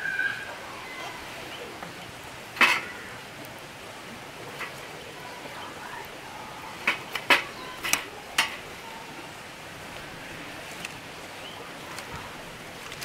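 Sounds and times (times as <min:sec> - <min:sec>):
fire tongs clacking: 0:02.5 - 0:03.0, 0:04.5 - 0:04.9, 0:06.8 - 0:08.7.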